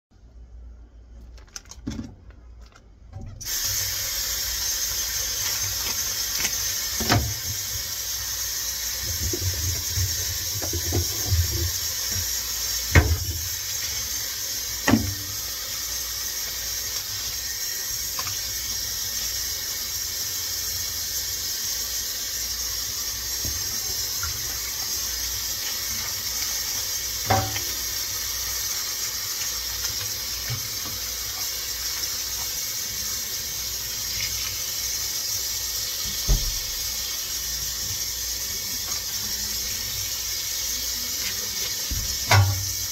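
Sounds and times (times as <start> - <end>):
faucet running into metal sink: 3.4 - 42.9
knocks in sink: 41.9 - 42.7.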